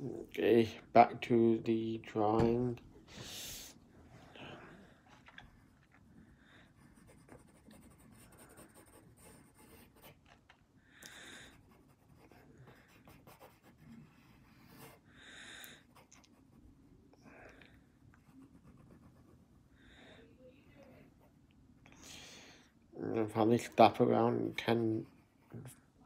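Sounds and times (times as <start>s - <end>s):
pencil scratching on paper: 6.6s - 10.2s, 11.4s - 15.1s, 15.8s - 16.7s, 18.2s - 19.6s.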